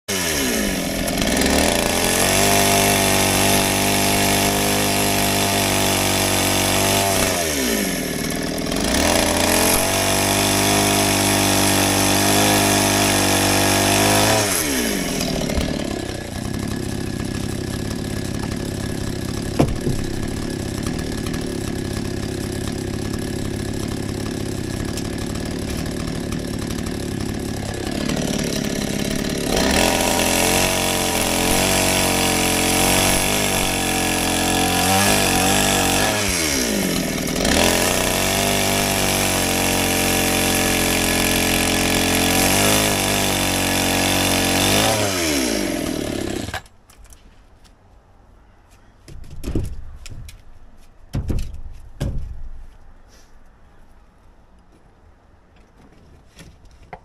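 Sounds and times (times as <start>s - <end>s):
chainsaw idling and revving: 0.0s - 46.7s
chainsaw cutting log: 0.1s - 46.7s.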